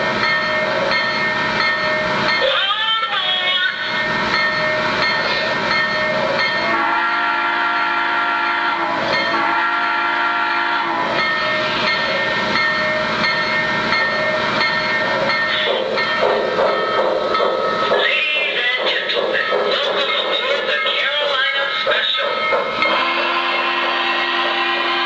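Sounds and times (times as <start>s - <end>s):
model train running: 0.0s - 25.0s
model train chime whistle: 6.7s - 11.0s, 22.8s - 25.0s.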